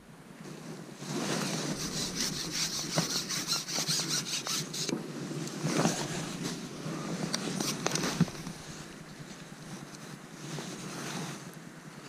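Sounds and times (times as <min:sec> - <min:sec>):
fishing pole rubbing through hands: 0:01.1 - 0:04.9, 0:05.6 - 0:11.4
fishing pole clicks: 0:01.7 - 0:05.0.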